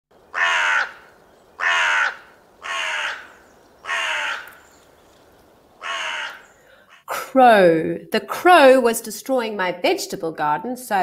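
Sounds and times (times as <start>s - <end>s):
crow cawing: 0.3s - 4.8s, 5.8s - 7.1s.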